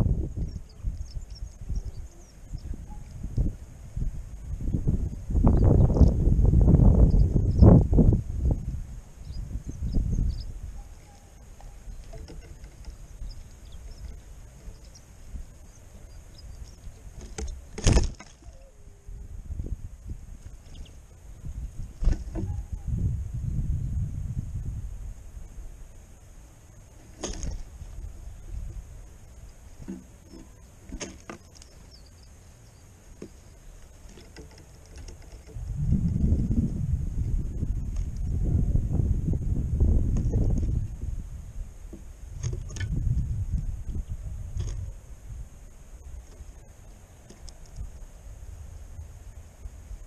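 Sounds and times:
wind rumble on microphone: 0.0 - 50.0
bird pecking in wooden feeder: 10.8 - 15.1, 27.0 - 27.8, 29.3 - 36.5, 46.1 - 47.9.

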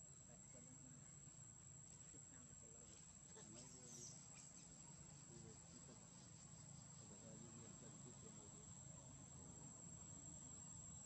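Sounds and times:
high-pitched insect trill: 3.1 - 11.0.

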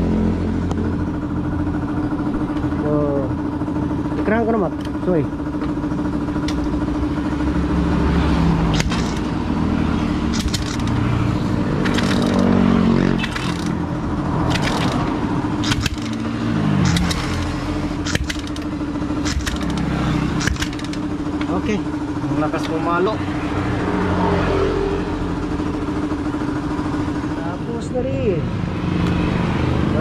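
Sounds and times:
motorcycle engine revving: 0.0 - 30.0
sharp clicks: 8.7 - 9.3, 10.2 - 11.0, 11.8 - 12.5, 13.2 - 13.8, 14.4 - 21.5.

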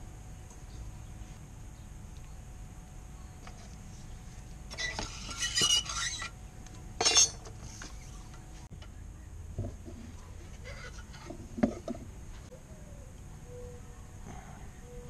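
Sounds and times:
metal tools clinking: 7.0 - 7.6.

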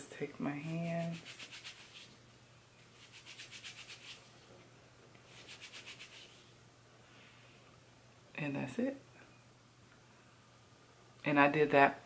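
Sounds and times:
palms rubbing hair: 0.5 - 2.2, 2.8 - 4.4, 5.3 - 6.5.

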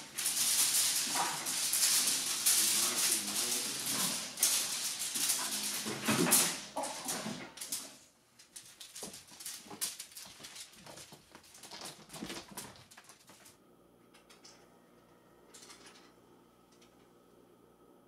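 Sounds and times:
mylar toy crinkling: 0.0 - 13.5.

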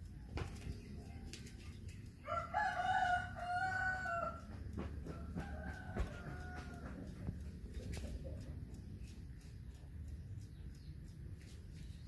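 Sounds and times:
rooster crowing: 2.2 - 7.1
light clicks: 4.0 - 12.0.

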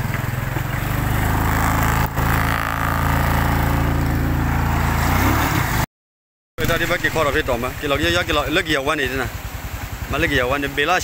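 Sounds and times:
motorcycle engine running: 0.0 - 5.4.

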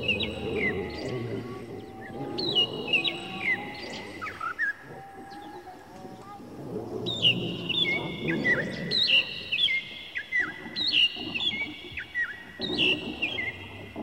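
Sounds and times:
recorded birdsong chirps: 0.0 - 14.0.

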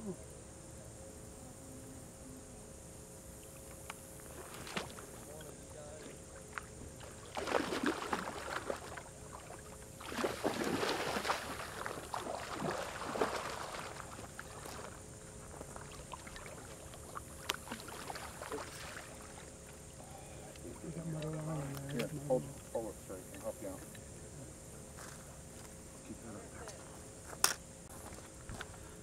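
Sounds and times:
fish splashing in water: 6.0 - 19.9.

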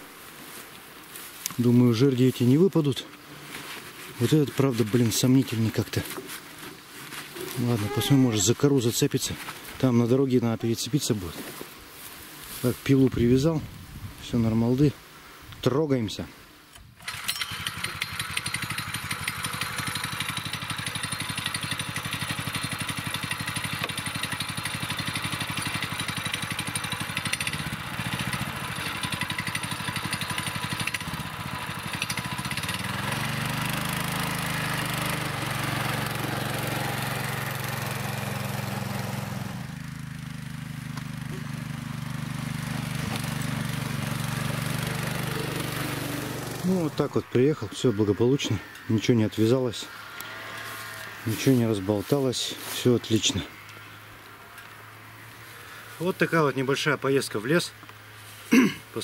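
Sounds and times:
motorbike engine pulling away: 17.0 - 48.7.

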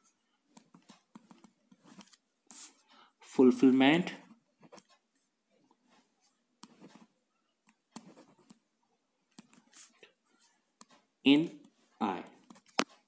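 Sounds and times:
pen scratching on paper: 0.5 - 2.9, 4.5 - 8.7, 9.3 - 11.0.

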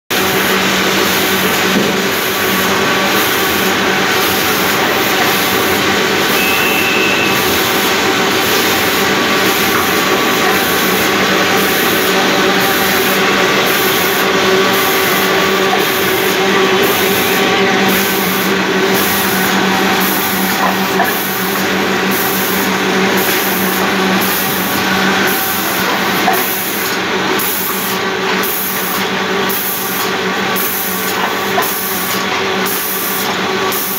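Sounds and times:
machine hum and whirr: 0.1 - 33.9
high pulsing sound: 3.3 - 20.3.

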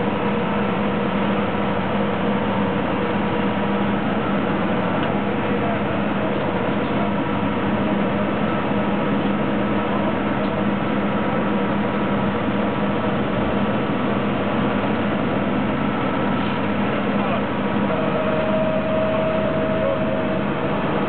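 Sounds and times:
machinery humming: 0.0 - 21.0.

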